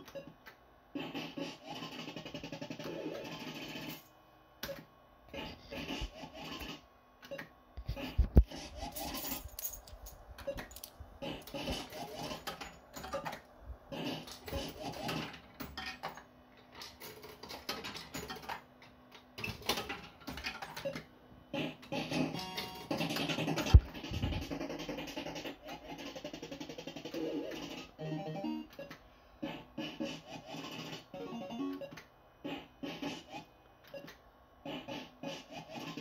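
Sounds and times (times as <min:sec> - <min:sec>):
electronic bleeps and jingles: 0:28.0 - 0:28.9, 0:31.2 - 0:32.0.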